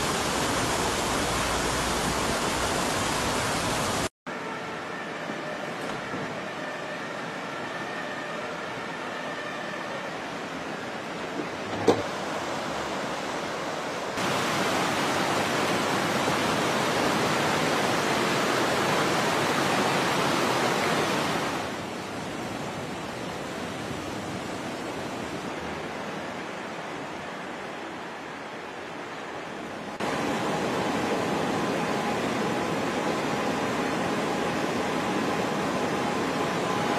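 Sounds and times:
floodwater rushing: 0:00.0 - 0:04.1, 0:04.7 - 0:36.9.

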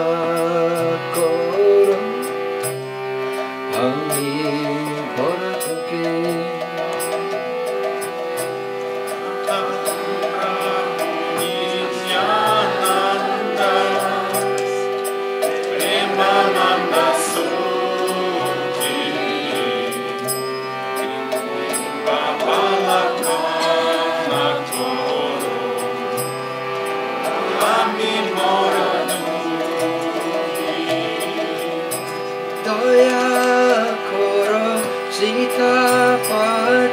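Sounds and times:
man singing devotional song: 0:00.0 - 0:02.4, 0:03.7 - 0:06.8, 0:09.3 - 0:14.9, 0:21.1 - 0:26.3, 0:27.4 - 0:36.9
harmonium chords: 0:00.0 - 0:36.9
hand cymbals ringing: 0:19.6 - 0:22.5.

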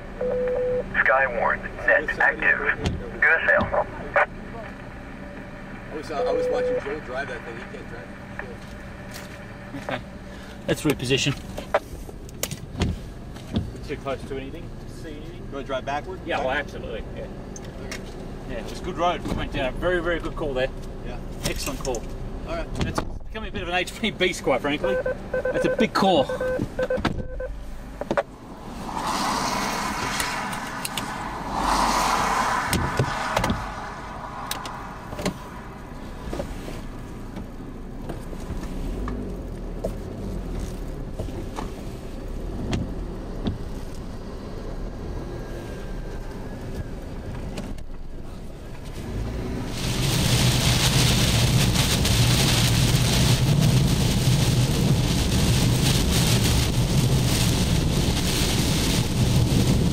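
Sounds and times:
car running: 0:00.0 - 0:59.9
road noise on wet highway: 0:00.0 - 0:59.9
rain: 0:49.0 - 0:59.9.

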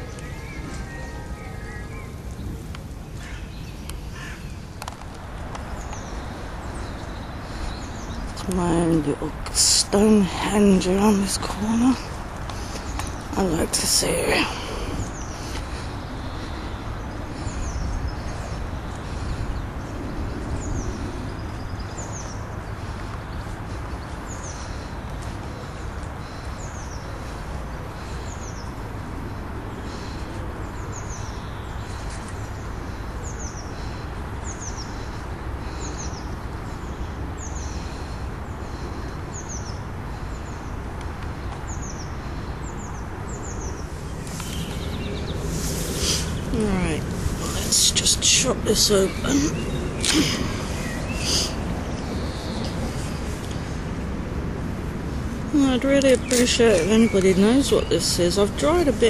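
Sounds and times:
small bird calling: 0:00.0 - 0:02.6, 0:41.4 - 0:53.6
distant road traffic rumble: 0:00.0 - 0:59.0.

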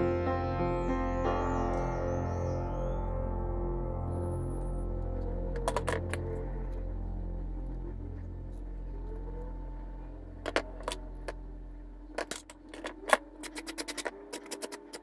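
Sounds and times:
soft background music: 0:00.0 - 0:15.0
metal wire and pliers clicking: 0:05.5 - 0:06.4, 0:10.4 - 0:11.4, 0:12.1 - 0:15.0.

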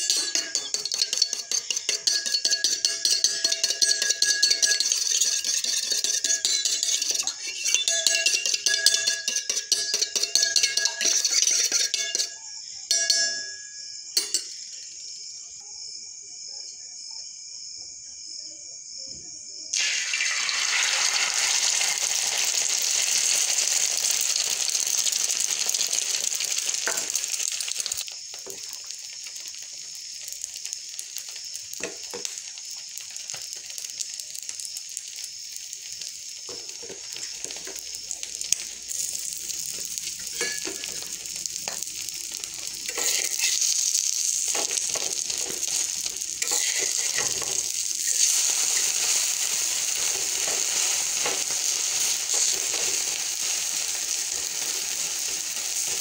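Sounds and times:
eggs sizzling in hot oil: 0:00.0 - 0:13.5, 0:19.7 - 0:56.0
whisk clinking in steel bowl: 0:00.0 - 0:13.5, 0:42.9 - 0:43.6.

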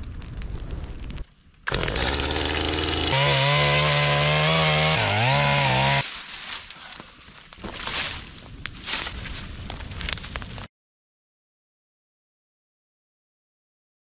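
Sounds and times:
chainsaw cutting branches: 0:01.7 - 0:06.1.

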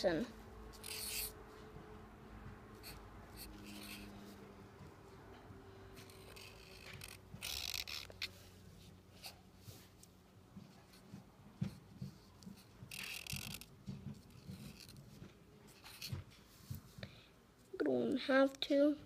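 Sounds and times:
marker scratching on paper: 0:00.7 - 0:01.4, 0:02.8 - 0:04.4, 0:06.0 - 0:08.5, 0:11.7 - 0:16.2.

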